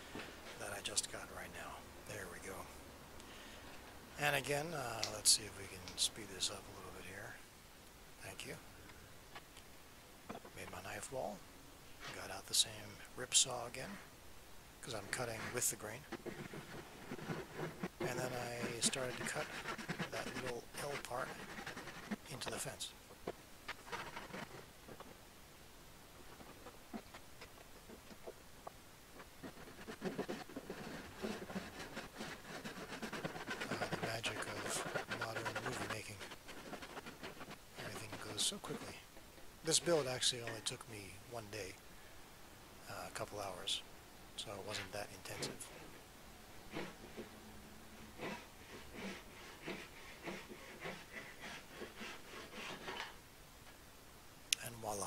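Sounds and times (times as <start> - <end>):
hand saw rasping through wood: 16.4 - 22.2, 29.6 - 38.5, 48.2 - 53.1.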